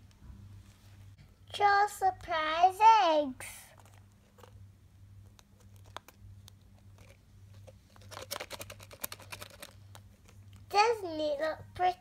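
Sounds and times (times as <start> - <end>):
plastic egg rattling clicks: 7.9 - 10.6.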